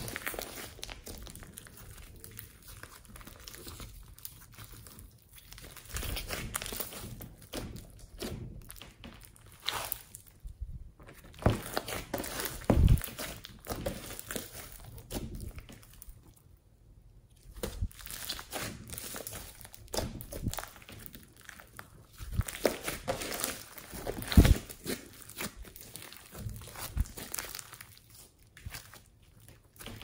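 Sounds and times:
dull thuds: 12.6 - 14.0.

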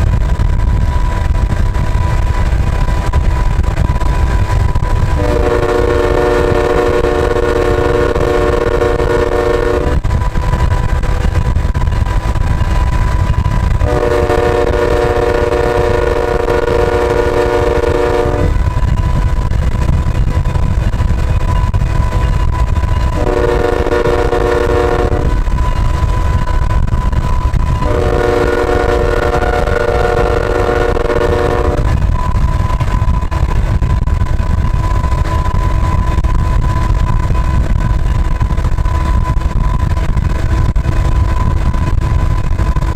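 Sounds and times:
constant low rumble: 0.0 - 42.9
locomotive air horn blast: 5.1 - 10.2, 13.8 - 18.7, 23.1 - 25.5, 27.8 - 32.0.

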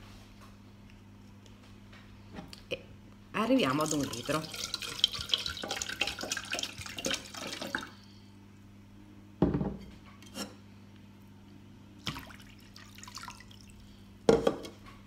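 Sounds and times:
water poured into plastic bowl: 3.9 - 7.9, 12.0 - 13.8.

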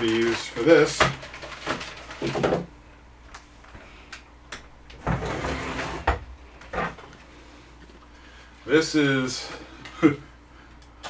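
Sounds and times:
packaging rustling: 0.0 - 2.6.

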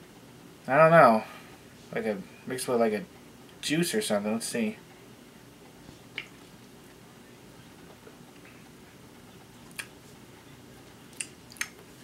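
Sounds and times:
mouth clicks and lip smacks: 6.1 - 6.4, 9.7 - 10.0, 11.1 - 11.8.

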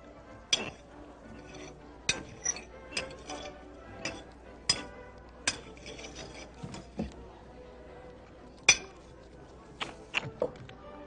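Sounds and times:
cutlery clinking on plates and glass: 0.5 - 7.2, 8.6 - 9.2.

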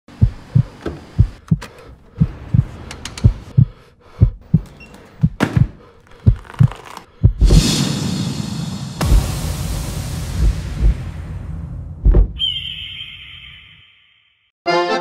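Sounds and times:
heartbeat-style thumps: 0.1 - 1.6, 2.2 - 7.7, 9.0 - 12.4.

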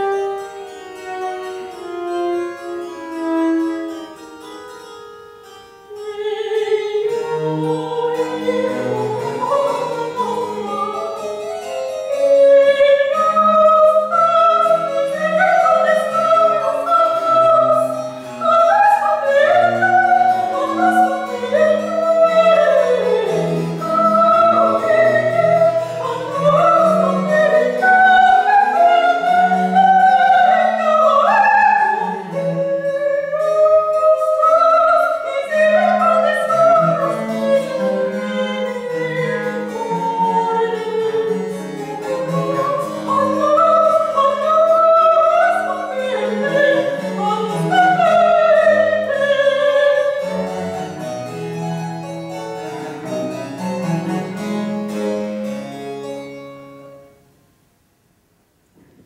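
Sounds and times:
cello: 0.0 - 57.2
harpsichord plucking chords: 0.0 - 57.3
soprano singing with vibrato: 5.9 - 50.8.

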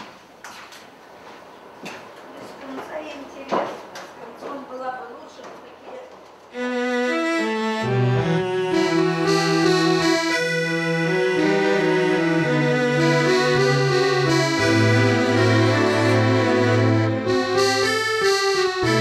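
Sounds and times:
film score music with accordion: 6.5 - 19.0.

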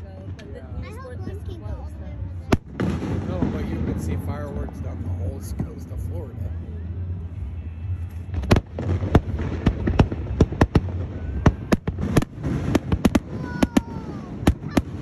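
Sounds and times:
fireworks bangs and cracks: 2.4 - 6.1, 8.3 - 15.0.

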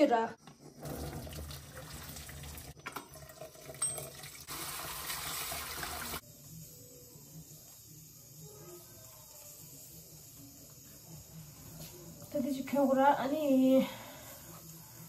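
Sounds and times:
tap water running into colander: 0.8 - 6.2.

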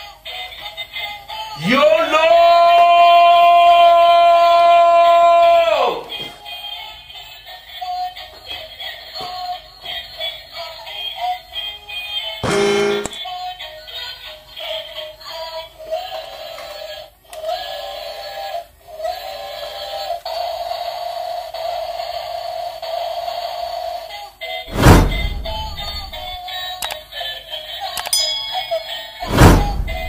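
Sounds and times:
loud whooshes: 24.7 - 26.4, 29.2 - 30.0.

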